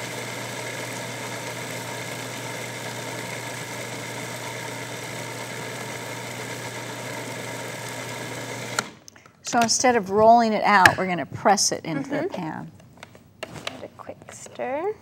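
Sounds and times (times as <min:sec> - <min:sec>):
food processor running: 0:00.0 - 0:09.0.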